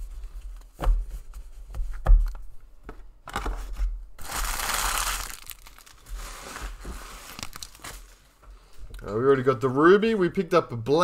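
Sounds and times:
wrapper crinkling: 0:04.2 - 0:08.3.

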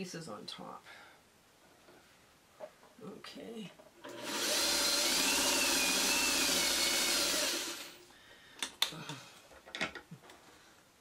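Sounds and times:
electric sewing machine running: 0:04.0 - 0:08.0.

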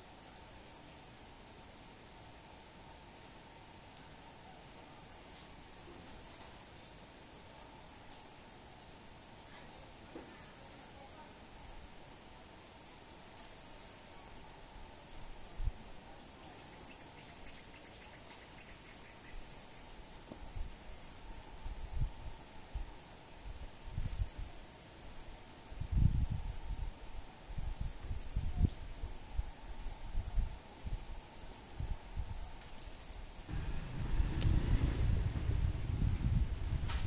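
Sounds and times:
insect chorus buzzing: 0:00.0 - 0:37.0
short low thumps: 0:33.5 - 0:37.0.

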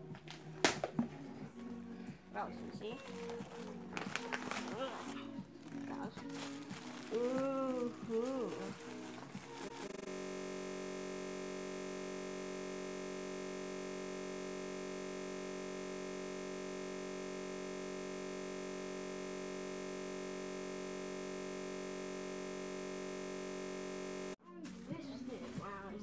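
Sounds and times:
steady electronic drone: 0:09.8 - 0:24.4.

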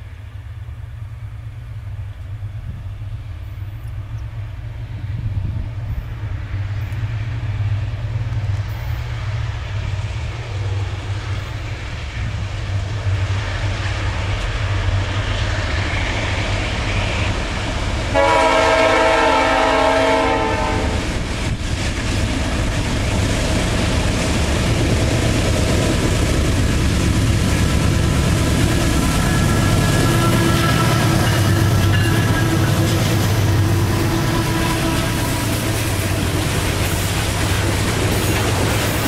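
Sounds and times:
locomotive air horn chord: 0:18.1 - 0:21.1, 0:29.0 - 0:36.3.

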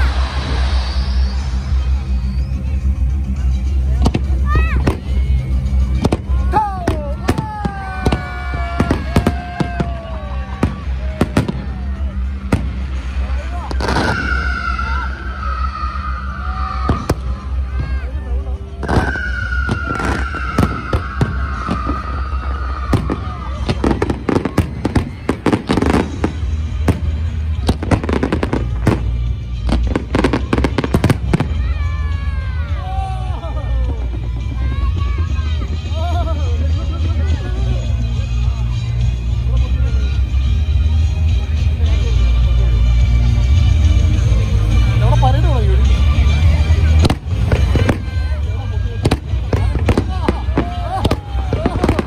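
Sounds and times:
fireworks bangs: 0:00.0 - 0:18.1, 0:18.7 - 0:32.7, 0:45.8 - 0:52.0
low rumble: 0:00.0 - 0:39.0.

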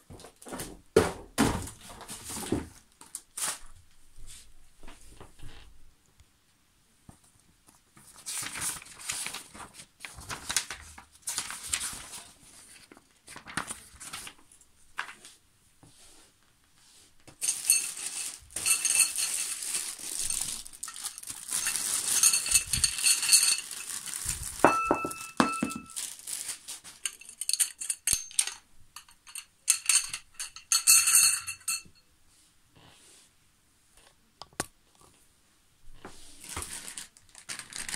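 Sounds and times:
plastic packaging crinkling and tearing: 0:08.1 - 0:14.4, 0:17.4 - 0:27.3, 0:36.4 - 0:37.9
metal tubes clinking: 0:17.4 - 0:24.0, 0:24.6 - 0:26.0, 0:27.0 - 0:32.0.

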